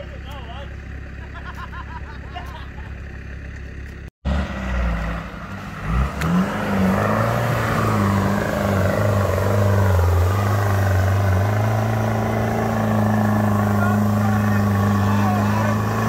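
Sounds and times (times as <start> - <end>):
off-road vehicle engine revving: 0.0 - 16.0.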